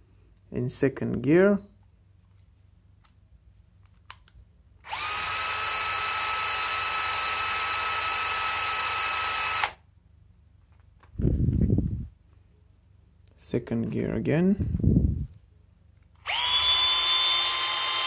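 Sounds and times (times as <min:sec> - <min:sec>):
cordless drill whining: 0:04.8 - 0:09.8, 0:16.2 - 0:18.0.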